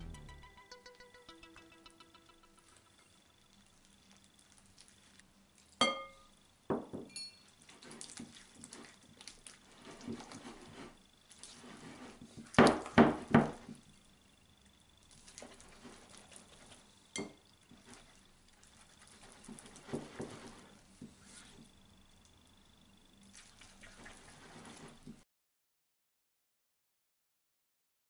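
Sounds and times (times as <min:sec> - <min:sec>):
whisk swishing in batter: 0:07.6 - 0:13.0, 0:17.7 - 0:21.6, 0:23.4 - 0:25.1.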